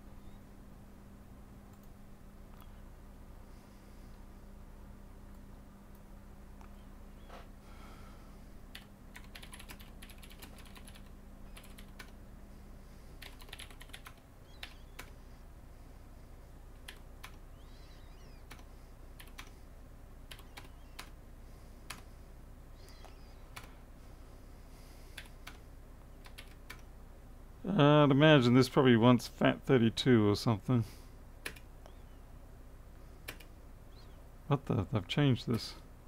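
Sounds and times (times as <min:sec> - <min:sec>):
keyboard typing: 0:08.7 - 0:12.2, 0:13.2 - 0:15.2, 0:16.8 - 0:17.4, 0:18.3 - 0:19.6, 0:20.3 - 0:21.2, 0:26.2 - 0:26.9, 0:31.4 - 0:31.7, 0:33.2 - 0:33.5.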